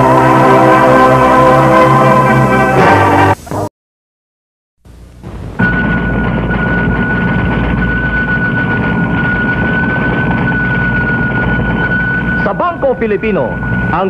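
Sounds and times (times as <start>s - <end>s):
steady high tone: 0.0s - 3.5s, 5.3s - 14.0s
machine whirring and rumbling: 4.9s - 14.0s.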